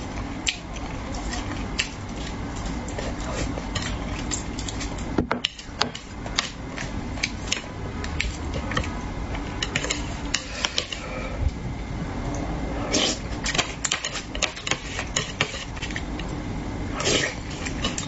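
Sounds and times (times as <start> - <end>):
steady low hum: 0.0 - 18.0
slurping and chewing: 0.4 - 5.1, 12.8 - 18.0.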